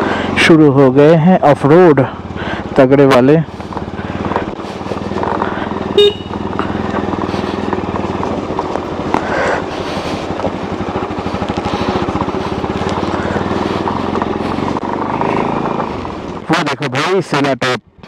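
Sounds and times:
motorcycle engine running: 0.0 - 18.0.

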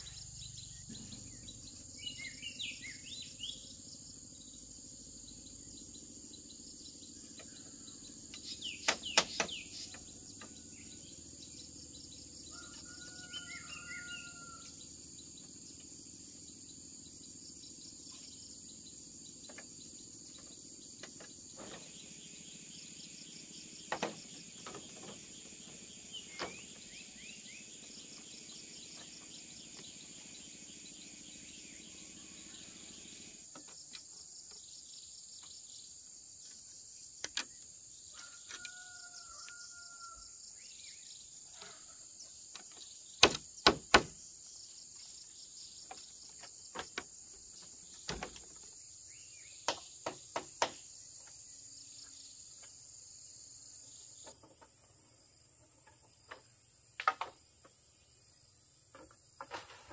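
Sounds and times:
high-pitched insect chorus: 0.0 - 59.9
bamboo poles knocking: 42.6 - 44.2, 45.9 - 48.7, 49.7 - 51.4.

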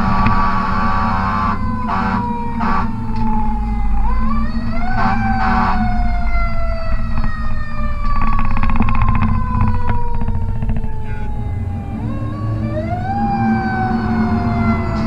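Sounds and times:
truck horn blasts: 0.0 - 3.2, 4.8 - 6.1
diesel engine running: 0.0 - 15.0
fire truck siren: 0.0 - 15.0.

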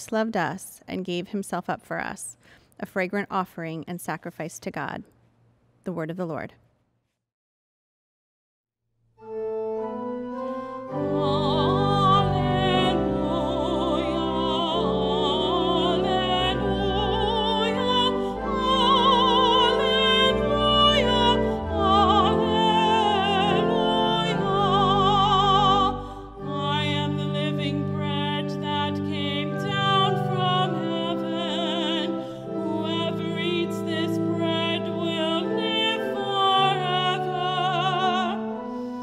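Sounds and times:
pipe organ chords: 9.2 - 39.0
woman singing with vibrato: 10.9 - 38.6.

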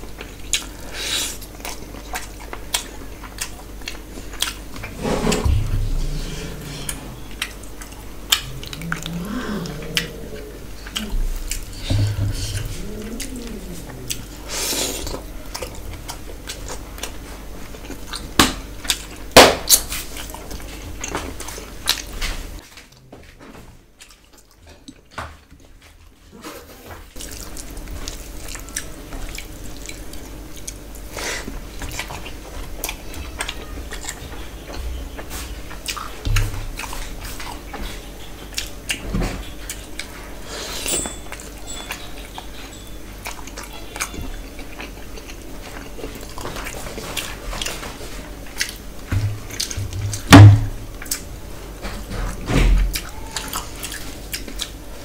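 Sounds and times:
wet chewing and smacking: 0.0 - 4.9, 6.8 - 14.4, 15.0 - 22.2, 27.2 - 40.4, 41.2 - 50.2, 50.9 - 51.3, 52.8 - 54.8
low steady hum: 0.0 - 19.4, 27.2 - 55.0
loud knocks: 5.0 - 6.6, 49.1 - 50.8.

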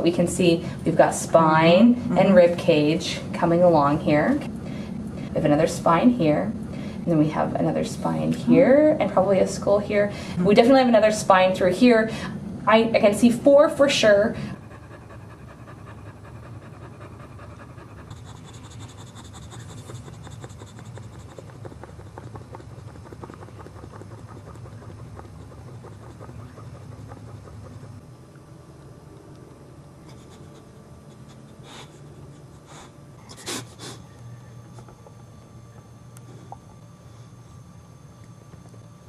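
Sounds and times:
dog panting rapidly: 14.1 - 28.0.

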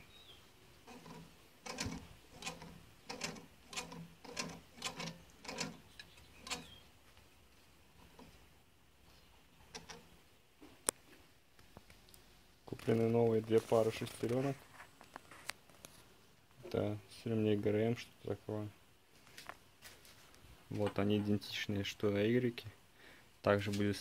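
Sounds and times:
pulley clicking knocks: 0.9 - 6.7.

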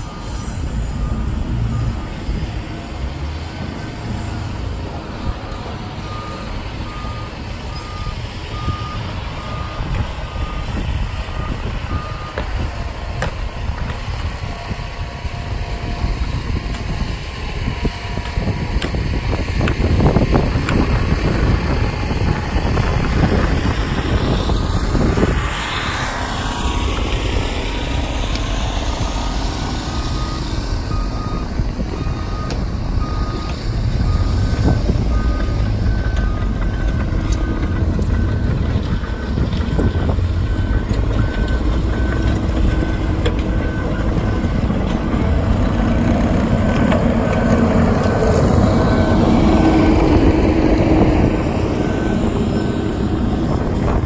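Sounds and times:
backup alarms beeping: 0.0 - 13.4, 29.8 - 45.4, 47.4 - 53.9
heavy machinery engines rumbling: 0.0 - 54.0.

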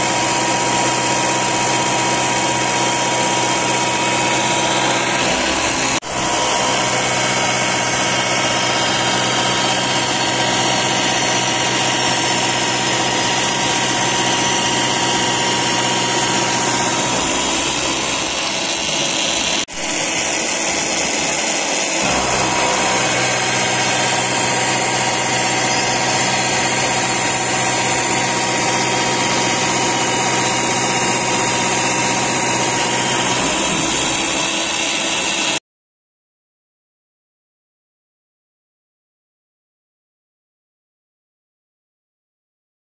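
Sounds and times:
milling machine cutting steel: 0.0 - 35.6
spindle drive hum: 4.3 - 35.5.

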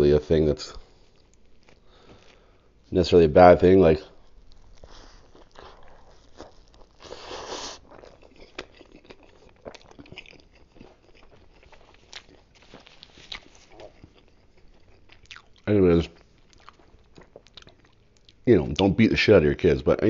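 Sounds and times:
chewing and crunching: 0.8 - 2.7, 3.6 - 18.9.

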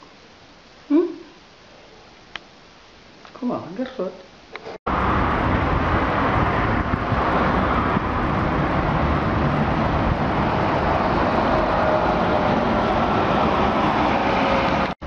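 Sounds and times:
wind buffeting microphone: 4.9 - 14.9
road traffic hum: 4.9 - 15.0.

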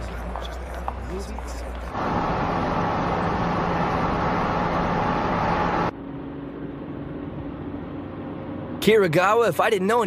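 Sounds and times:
car engine hum: 0.0 - 10.0
road noise: 0.0 - 10.0.

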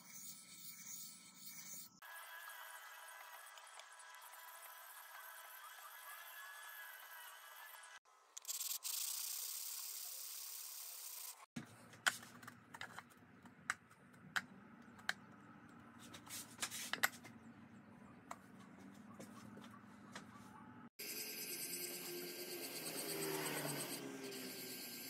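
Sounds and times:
stone rubbing hiss: 8.4 - 11.4.

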